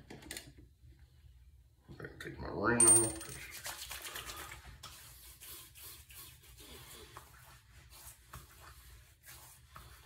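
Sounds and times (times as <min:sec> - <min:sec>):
hands rubbing on skin and whiskers: 0:03.5 - 0:10.0.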